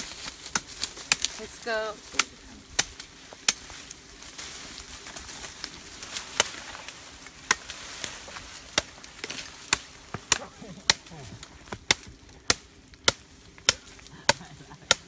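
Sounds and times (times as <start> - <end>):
cleaver chopping tree branch: 0.3 - 1.4, 2.1 - 3.9, 6.2 - 15.0.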